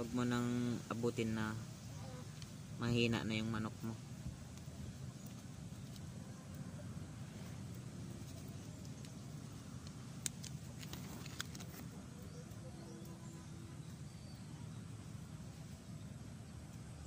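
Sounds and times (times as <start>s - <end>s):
faint sharp clicks: 9.8s - 13.2s.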